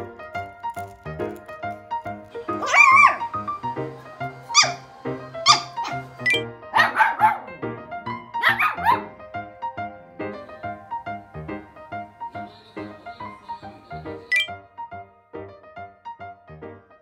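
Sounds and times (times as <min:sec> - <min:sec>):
puppy yapping: 0:02.4 - 0:07.5, 0:08.4 - 0:09.1.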